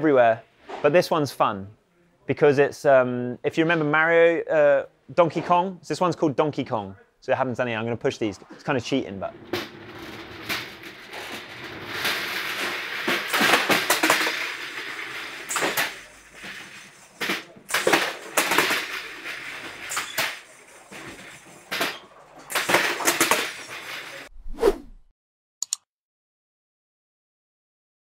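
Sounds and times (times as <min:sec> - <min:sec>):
crates knocking on metal rollers: 0:09.2 - 0:24.2
plastic crates rattling on rollers: 0:09.2 - 0:24.3.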